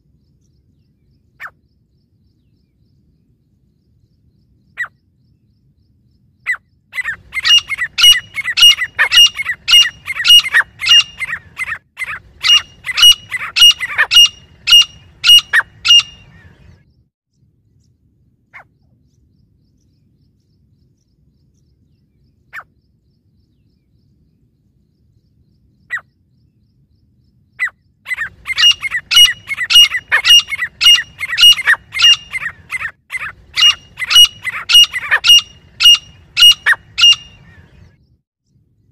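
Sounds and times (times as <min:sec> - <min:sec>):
francolin calling: 0:06.5 - 0:16.7, 0:27.5 - 0:37.9.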